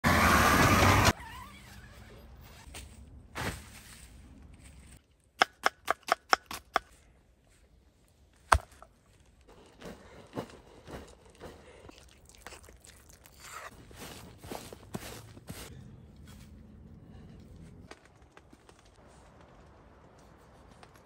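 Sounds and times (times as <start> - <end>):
van driving noise: 0.0 - 2.7.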